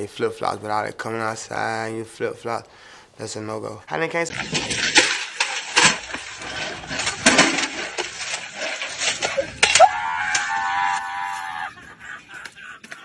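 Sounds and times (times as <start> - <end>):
high-pitched yell: 9.7 - 11.7.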